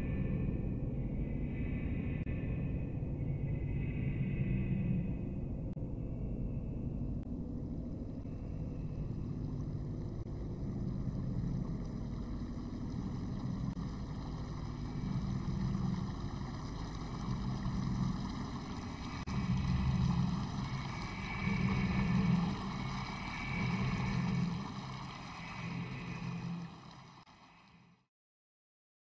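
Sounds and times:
ocean surf rumble: 9.3s - 27.8s.

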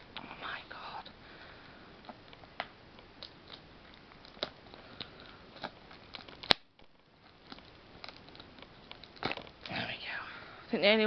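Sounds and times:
plastic wrap snap: 2.1s - 9.7s.

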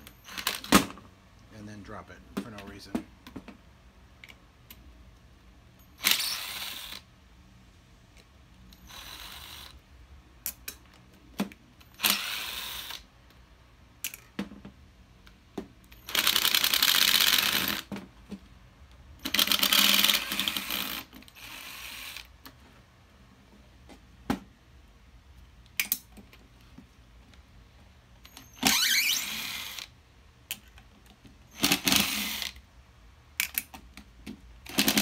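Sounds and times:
screwdriver rapid clicking: 34.7s - 35.0s.

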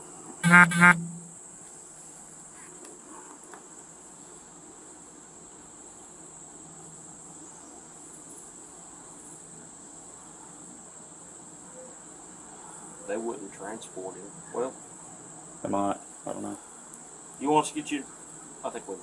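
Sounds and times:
insects droning: 0.0s - 19.0s
short tonal beeps: 0.4s - 1.4s.

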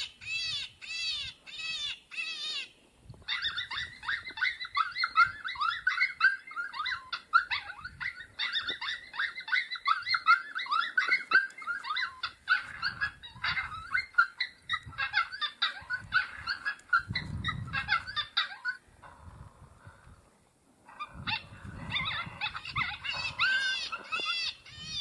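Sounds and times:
electronic predator call yips and howls: 3.3s - 18.8s, 20.9s - 25.0s.

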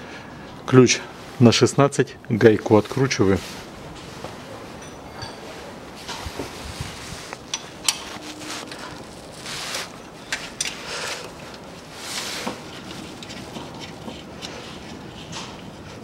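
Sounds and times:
hands and sleeves rustling: 2.9s - 14.6s.

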